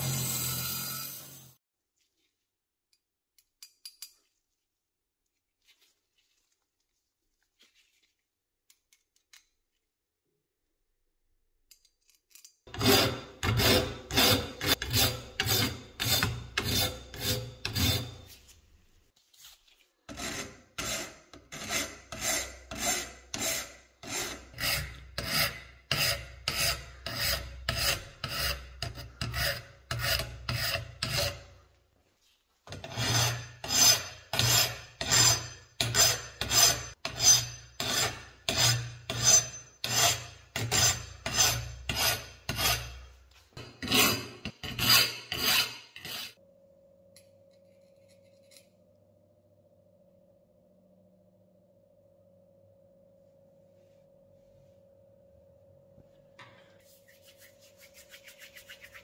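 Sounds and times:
file rasping over metal: 12.7s - 18.4s, 20.1s - 31.5s, 32.7s - 46.4s.

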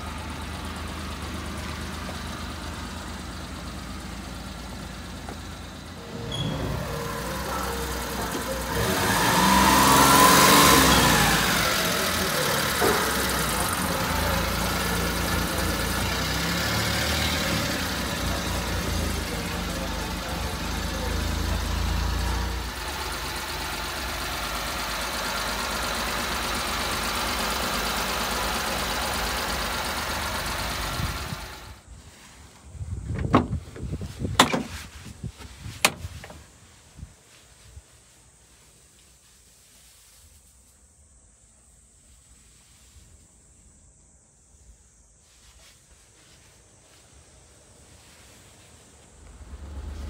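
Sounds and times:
small engine idling: 0.0s - 32.0s, 49.0s - 50.0s
wind rumble on microphone: 32.7s - 36.2s
steady high hiss: 36.1s - 50.0s.

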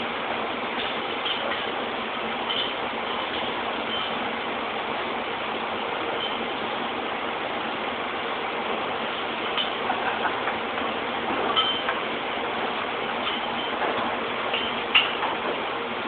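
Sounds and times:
factory machinery humming: 0.0s - 16.0s
parts clinking: 11.3s - 12.1s.

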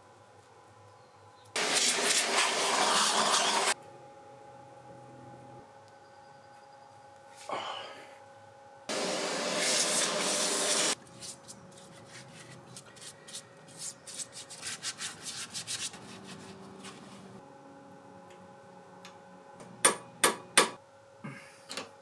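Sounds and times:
loud steady hiss: 1.6s - 3.8s, 8.9s - 11.0s.

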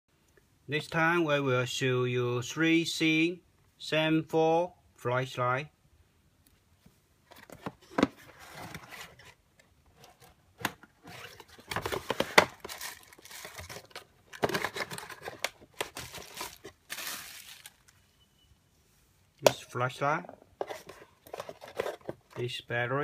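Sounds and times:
cardboard box being opened: 7.4s - 9.4s, 11.0s - 17.8s
plastic wrapping crinkling: 11.1s - 18.0s.

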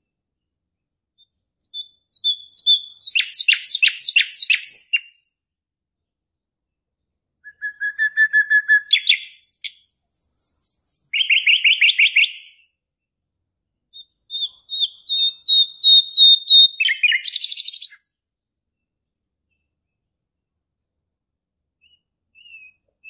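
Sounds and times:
songbird singing trills: 1.2s - 5.4s, 7.5s - 12.6s, 13.9s - 18.0s, 21.8s - 23.0s.

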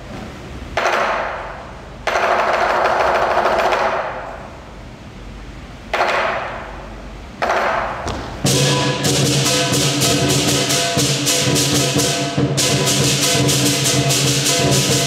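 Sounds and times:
hand cymbals crashing: 8.4s - 15.0s.

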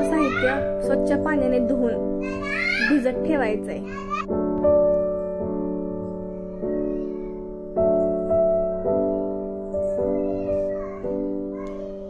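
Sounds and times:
keyboard playing slow chords: 3.8s - 12.0s.

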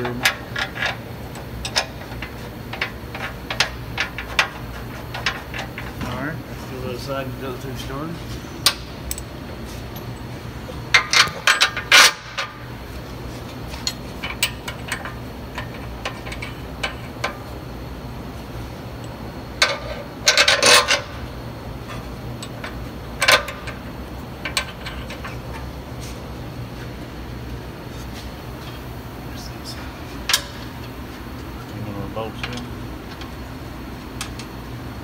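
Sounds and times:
low background hum: 0.0s - 35.0s.

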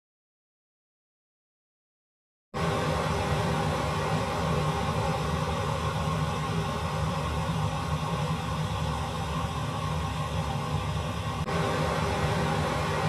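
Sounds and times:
low hum: 2.6s - 13.0s
steady rushing noise: 2.6s - 13.0s.

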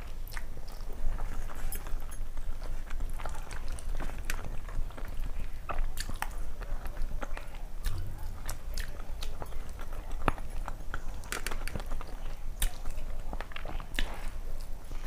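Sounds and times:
close chewing with wet mouth clicks: 0.0s - 15.0s.

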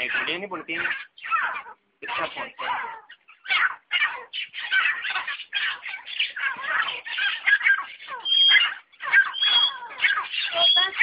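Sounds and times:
birds chattering squawks: 0.0s - 11.0s
high whistled bird note: 9.4s - 9.8s.

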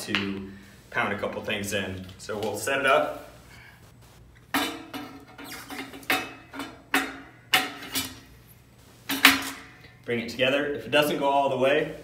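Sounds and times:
metal frame parts clanking: 4.5s - 8.3s.

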